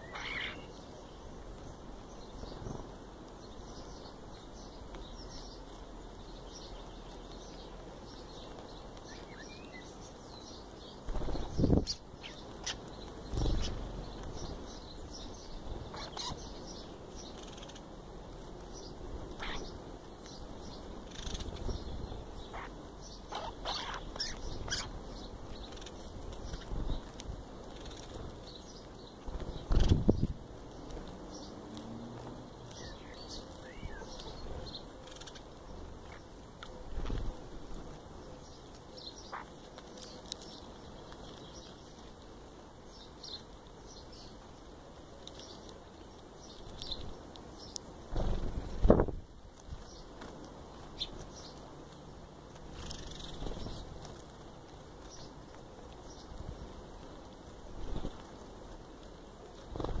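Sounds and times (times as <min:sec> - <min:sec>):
small birds chirping: 0:00.0 - 1:00.0
birds rustling and flapping: 0:01.3 - 1:00.0.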